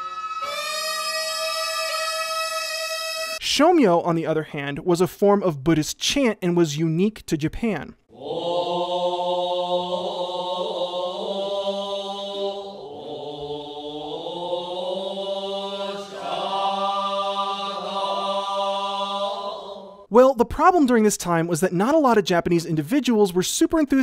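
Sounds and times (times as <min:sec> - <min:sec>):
monks chanting in unison: 0:08.1 - 0:20.1.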